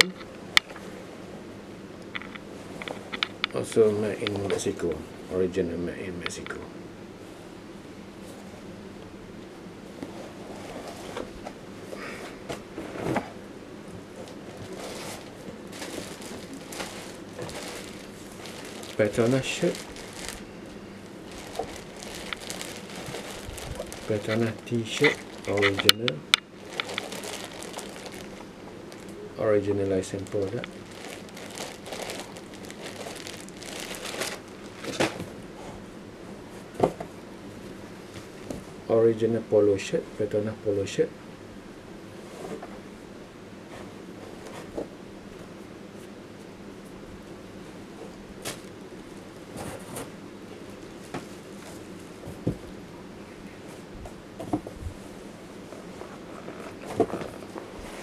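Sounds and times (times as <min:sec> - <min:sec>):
fabric rustling: 0:14.0 - 0:25.8, 0:26.5 - 0:29.2, 0:30.2 - 0:35.9
plastic bag crinkling: 0:14.3 - 0:29.2, 0:29.8 - 0:35.4.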